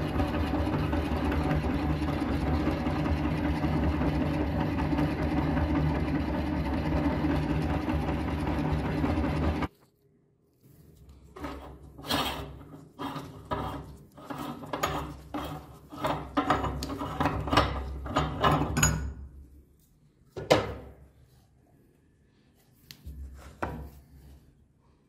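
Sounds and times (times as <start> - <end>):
metal grinder parts grating and scraping: 11.3 - 18.8.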